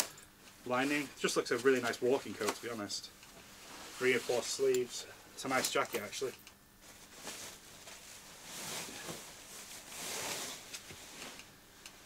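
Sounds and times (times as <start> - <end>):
jackets rustling: 6.8 - 11.2.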